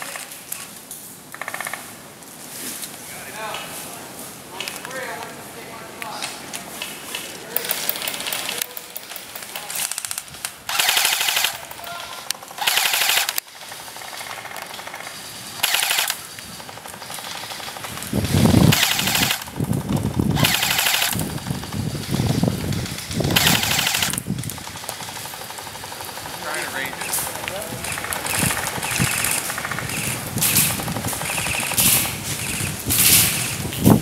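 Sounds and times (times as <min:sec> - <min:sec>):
airsoft guns firing bursts: 0:07.6 - 0:11.8, 0:12.4 - 0:33.7.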